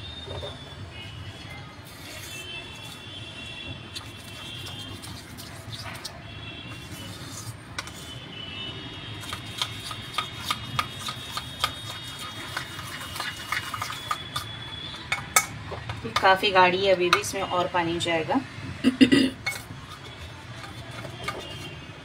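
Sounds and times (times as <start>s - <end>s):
metal spoon stirring in steel bowl: 0.2s - 18.1s, 19.4s - 22.0s.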